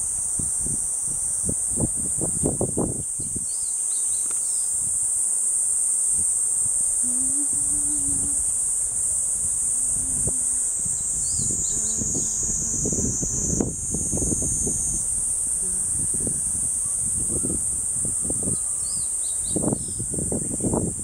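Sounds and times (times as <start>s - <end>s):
wind rumble on microphone: 0.0s - 3.6s, 6.1s - 21.0s
insect chorus buzzing: 0.0s - 21.0s
faint chirps: 9.8s - 13.6s.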